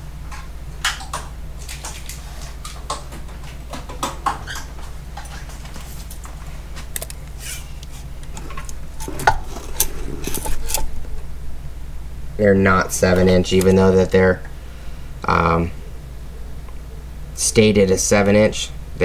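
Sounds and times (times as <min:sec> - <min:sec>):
steady low hum: 0:00.0 - 0:19.0
handling clicks and rustles: 0:00.3 - 0:11.3.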